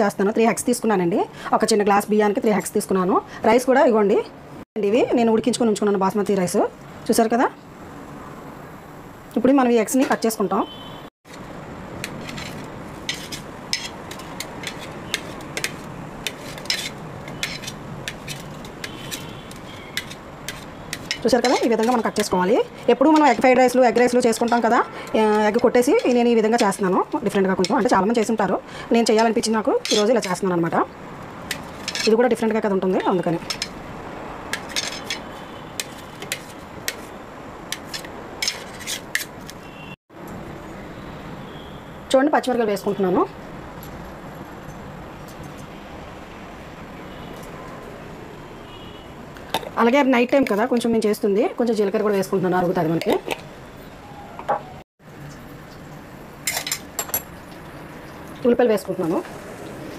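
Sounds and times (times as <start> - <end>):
knife tapping and scraping on metal plate: 12.0 - 22.3
knife chopping on steel plate: 20.0 - 22.3.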